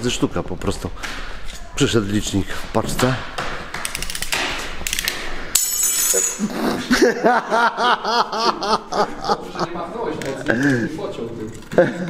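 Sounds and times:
metallic clink: 0:04.9 - 0:06.5
person laughing: 0:06.1 - 0:11.0, 0:11.7 - 0:12.0.

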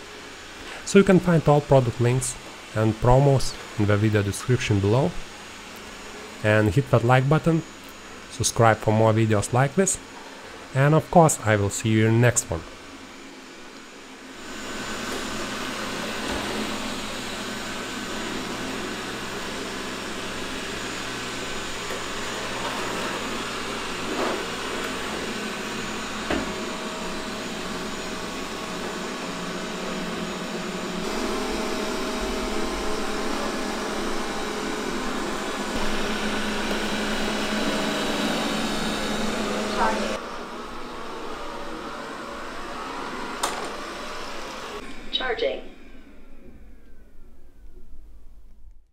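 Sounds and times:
robot vacuum cleaner whirring: 0:00.0 - 0:47.8.

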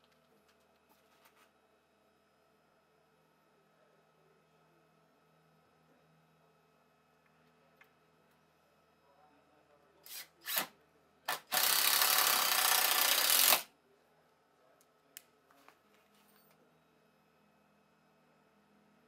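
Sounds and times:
cordless drill motor: 0:10.0 - 0:10.7, 0:11.3 - 0:13.7.

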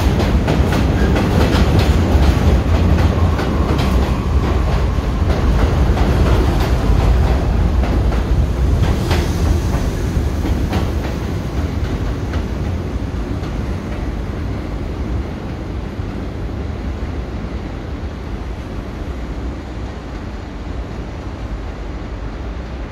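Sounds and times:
train wheels clacking over joints: 0:00.0 - 0:12.7
subway train rumble: 0:00.0 - 0:22.9.

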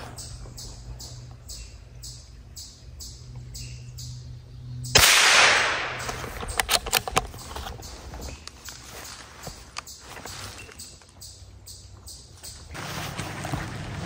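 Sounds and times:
sharp crack: 0:04.9 - 0:07.4
loud rustling: 0:12.6 - 0:14.0.

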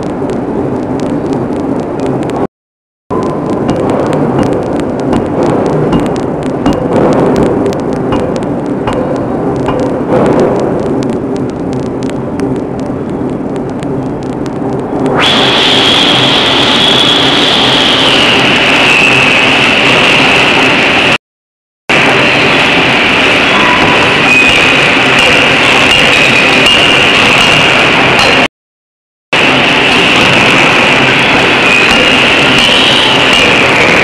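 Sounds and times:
machine rumble: 0:00.0 - 0:02.5, 0:03.1 - 0:21.2, 0:29.4 - 0:34.0
loud whistling hiss: 0:15.2 - 0:20.6, 0:30.8 - 0:33.5.

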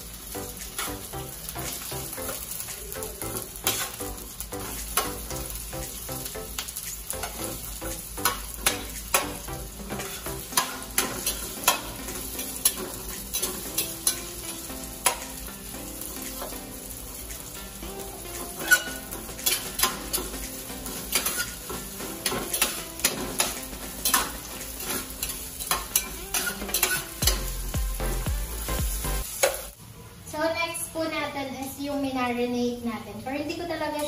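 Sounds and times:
onion sizzling in hot oil: 0:00.0 - 0:29.8
spatula tapping and scraping pan: 0:03.3 - 0:04.0, 0:04.6 - 0:05.3, 0:08.2 - 0:14.3, 0:15.0 - 0:15.5, 0:18.5 - 0:27.5.

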